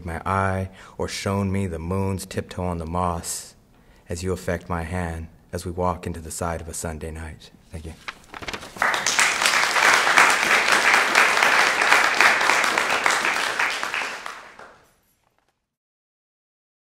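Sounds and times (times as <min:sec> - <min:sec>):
audience applauding: 0:08.4 - 0:14.9.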